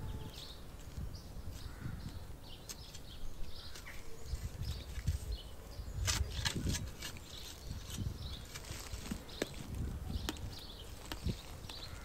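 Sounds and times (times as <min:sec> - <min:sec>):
small birds chirping: 0:00.0 - 0:12.0
spade digging into soil: 0:05.9 - 0:09.6.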